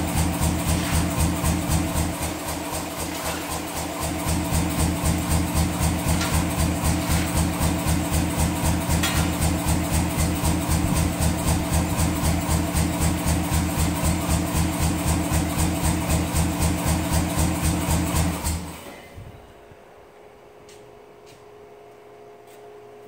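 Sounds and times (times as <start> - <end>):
power hammer motor chuffing: 0.0 - 18.8.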